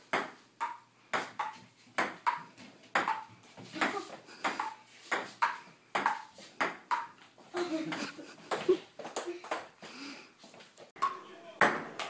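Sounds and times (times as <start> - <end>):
table tennis ball bouncing: 0.1 - 9.8, 11.0 - 12.0.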